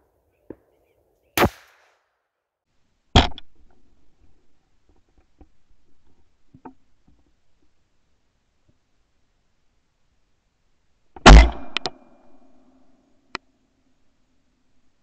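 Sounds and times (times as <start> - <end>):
shotgun bangs: 1.4 - 1.9, 11.2 - 12.0.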